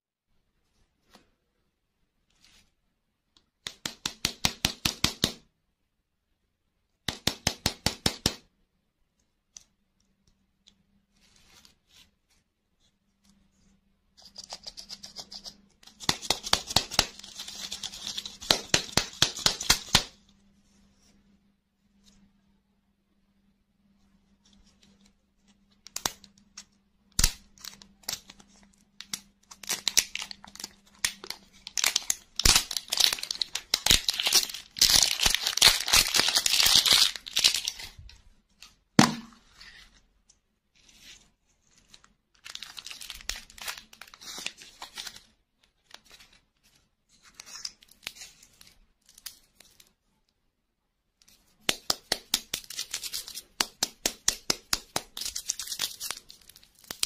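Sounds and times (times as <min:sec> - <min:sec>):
plastic wrapper tearing: 0:27.2 - 0:38.1, 0:41.9 - 0:46.4, 0:52.3 - 0:53.7, 0:54.7 - 0:57.0
sharp knock: 0:39.0 - 0:39.4.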